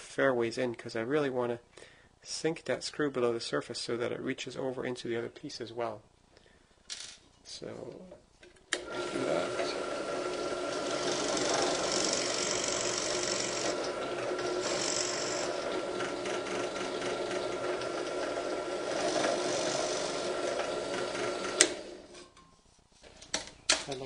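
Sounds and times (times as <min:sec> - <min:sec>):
drill press motor hum: 0:08.8 - 0:22.2
drill bit cutting into wood: 0:08.9 - 0:22.0.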